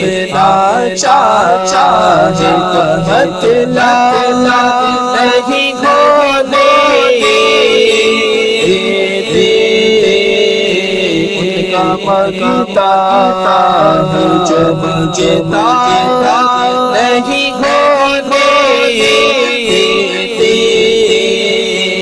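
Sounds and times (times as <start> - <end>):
man singing into a microphone: 0.0 - 22.0.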